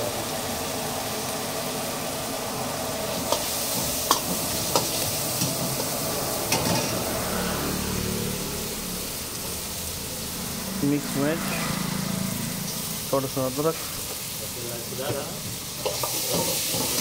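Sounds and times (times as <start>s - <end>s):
vegetables sizzling in hot oil: 0.0s - 17.0s
ladle clinking and scraping wok: 3.1s - 7.3s, 15.1s - 17.0s.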